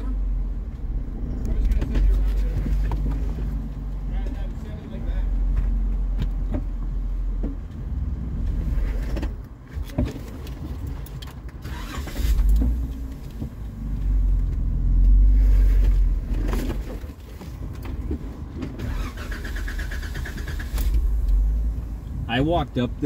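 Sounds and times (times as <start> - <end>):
knocks and clunks over rough ground: 0.0 - 11.6, 12.3 - 18.9
car engine rumbling: 0.0 - 23.0.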